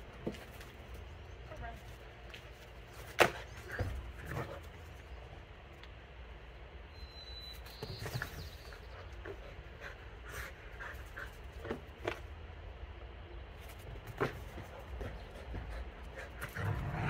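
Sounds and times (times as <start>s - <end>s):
dog panting: 14.6s - 16.8s.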